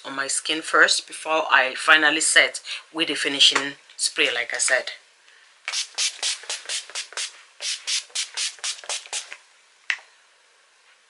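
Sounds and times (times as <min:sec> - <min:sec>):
pump mister spritzing hisses: 0:05.7 - 0:09.4.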